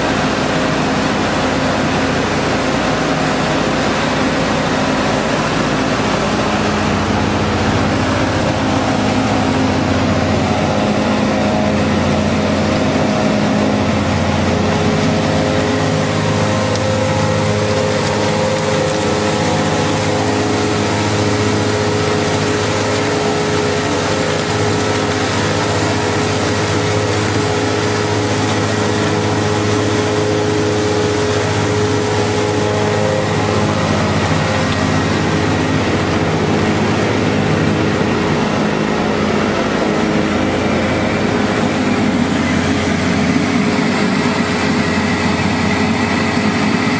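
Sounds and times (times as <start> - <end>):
machine hum with held tones: 0.0 - 46.9.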